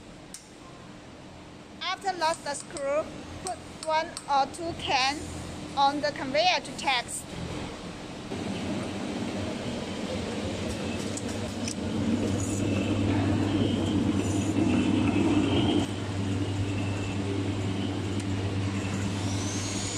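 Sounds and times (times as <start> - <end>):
machine motor hum: 8.3 - 19.9.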